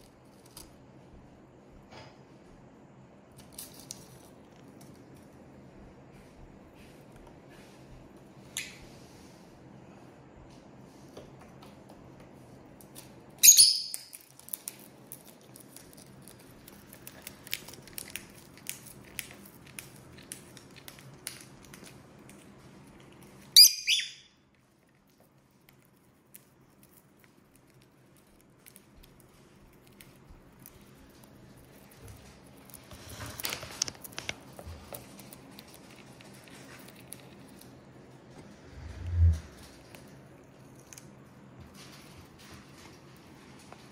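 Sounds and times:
lovebird chirps: 13.4 - 14.2, 23.6 - 24.4.

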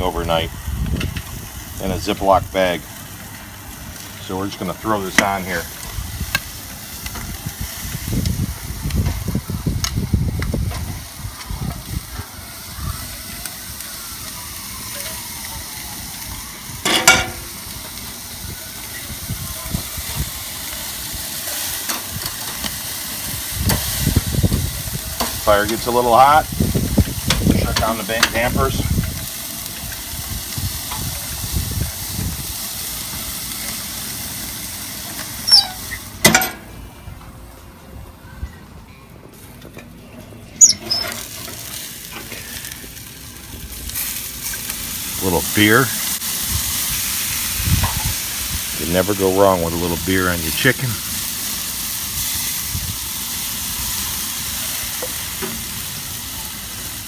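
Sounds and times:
chicken sizzling on a grate: 0.0 - 38.7, 39.3 - 57.0
metal lid clanging shut: 16.8 - 17.4, 36.3 - 36.6
short squeak: 35.4 - 36.0, 40.6 - 41.2.

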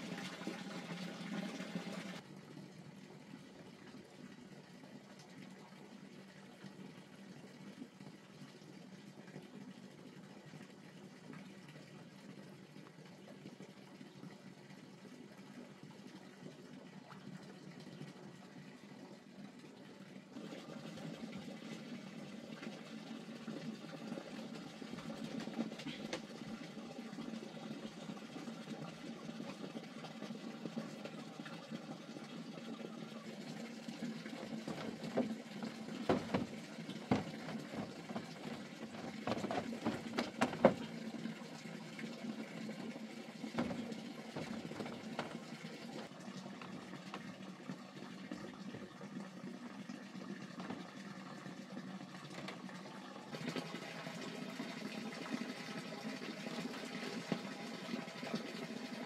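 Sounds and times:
running water: 0.0 - 59.0
bamboo slats knocking: 36.0 - 40.9.

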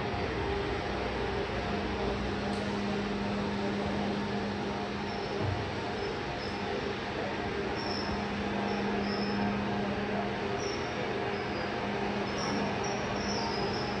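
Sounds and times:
agitator mechanical hum: 0.0 - 14.0.

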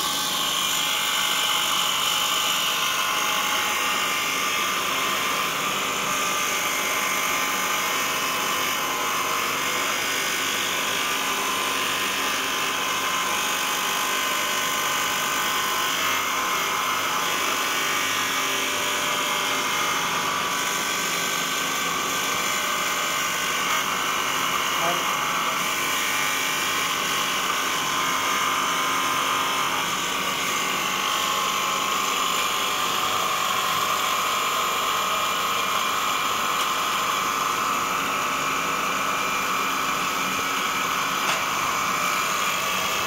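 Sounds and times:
grinding wheel grinding metal: 0.0 - 43.0.

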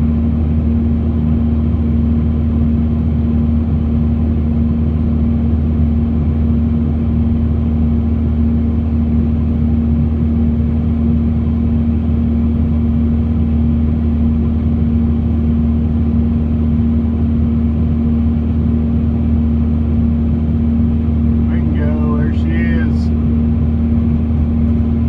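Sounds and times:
diesel engine running: 5.2 - 25.0.

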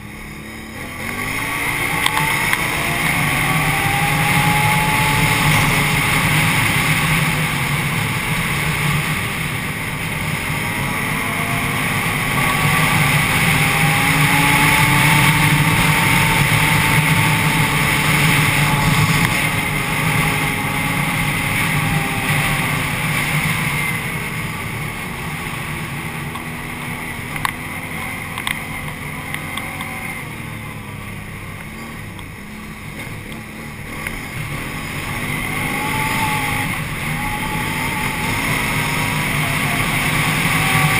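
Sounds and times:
atv engine running: 0.0 - 40.9.

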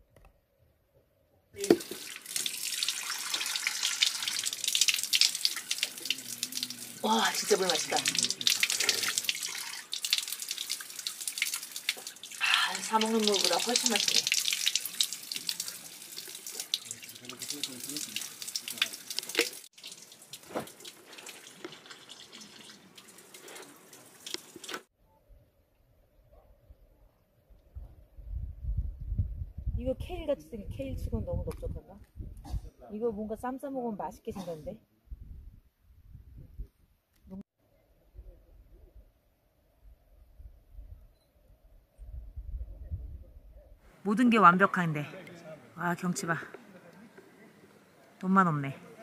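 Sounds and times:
water stream splashing on stones: 1.6 - 24.9.

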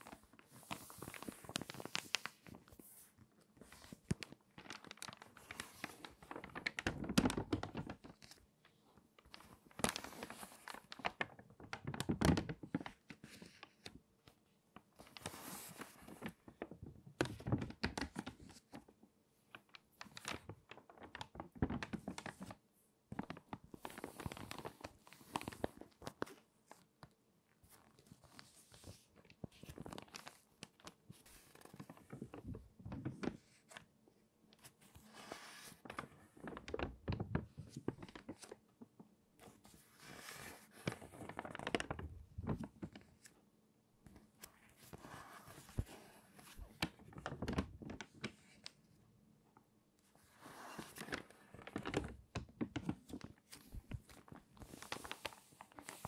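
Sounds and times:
magazine pages turning: 0.0 - 13.9, 15.0 - 16.6, 23.2 - 26.8, 27.6 - 33.9, 34.6 - 38.6, 39.4 - 43.3, 44.0 - 48.8, 50.2 - 56.0.

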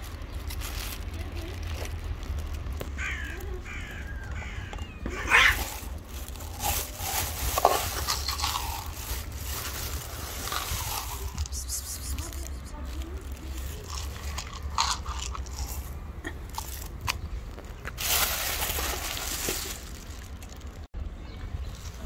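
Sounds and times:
cats meowing: 3.0 - 5.9.

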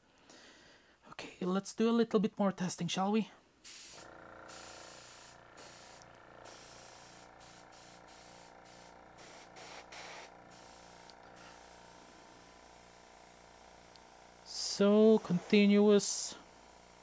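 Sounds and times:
air compressor humming: 3.6 - 17.0
air hissing from airbrush: 3.6 - 17.0.

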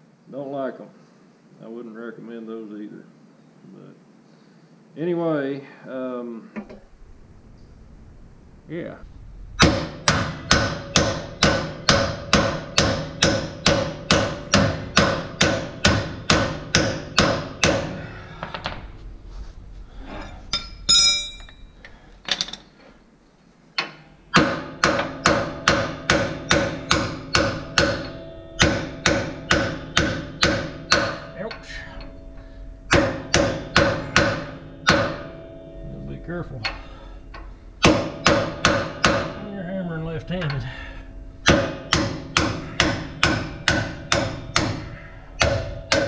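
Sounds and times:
hammer striking metal punch: 9.6 - 18.0, 20.5 - 21.6, 23.8 - 35.8, 36.6 - 39.5, 40.2 - 46.0
loose metal clanks: 20.1 - 22.9
brief high metallic ring: 20.5 - 21.7.

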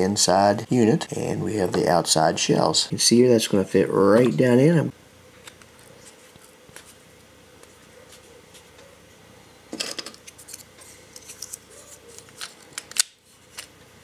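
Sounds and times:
plastic parts clicking: 12.2 - 13.7.

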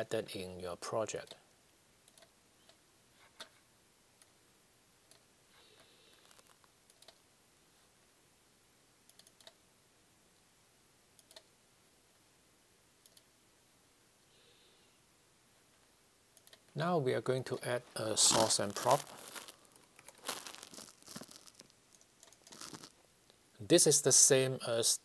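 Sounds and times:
computer mouse clicks: 9.1 - 9.6, 11.2 - 11.5, 13.0 - 13.3.

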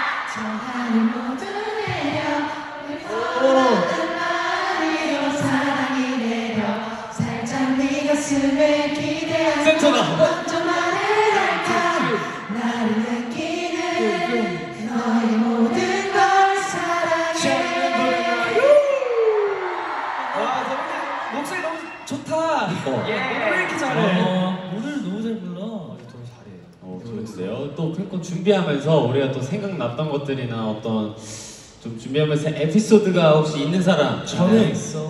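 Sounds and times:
group of voices singing: 0.0 - 21.4, 22.8 - 25.0.

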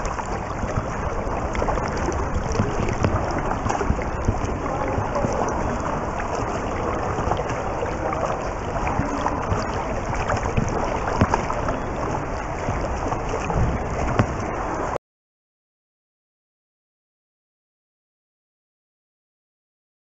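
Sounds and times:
underwater swimming water churning: 0.0 - 15.0.

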